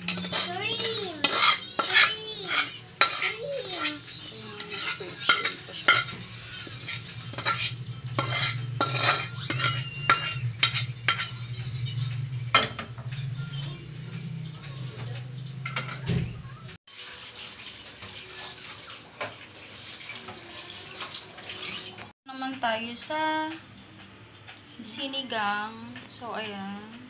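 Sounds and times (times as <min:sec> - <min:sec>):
metal spoon scraping a pan: 0:00.0 - 0:11.6.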